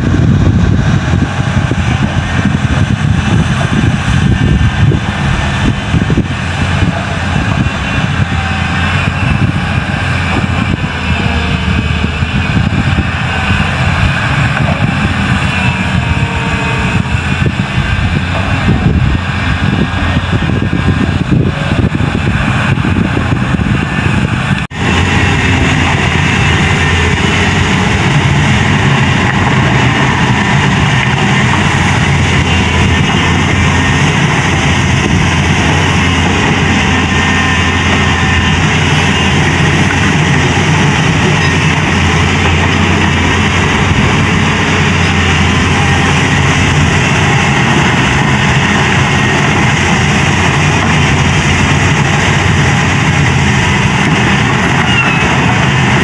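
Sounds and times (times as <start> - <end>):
excavator diesel engine droning: 0.0 - 56.0.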